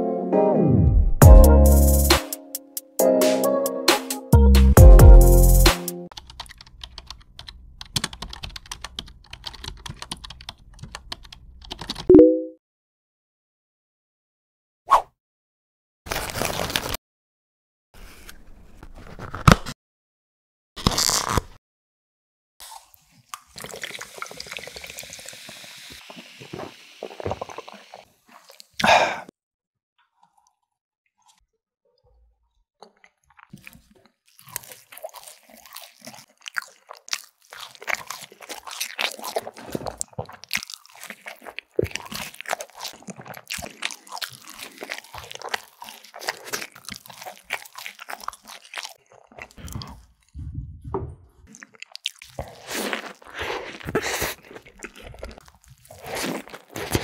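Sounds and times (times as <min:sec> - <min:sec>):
electronic music with heavy bass: 0:01.2 - 0:02.4, 0:03.0 - 0:05.9
liquid dripping and pouring: 0:23.4 - 0:28.6.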